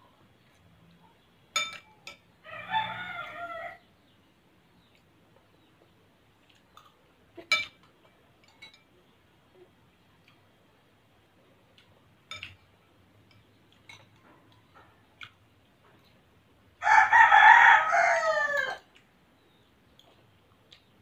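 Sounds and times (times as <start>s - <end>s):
spoons clinking against bowls: 1.5s - 2.3s, 7.4s - 9.0s, 12.2s - 14.2s
rooster crowing: 2.4s - 3.9s, 16.8s - 18.9s.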